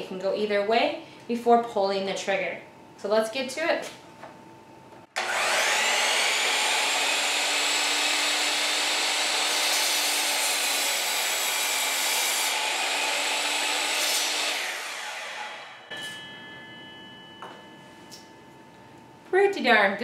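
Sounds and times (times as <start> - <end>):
miter saw motor whine: 5.2 - 15.9
saw blade cutting wood: 5.2 - 15.9.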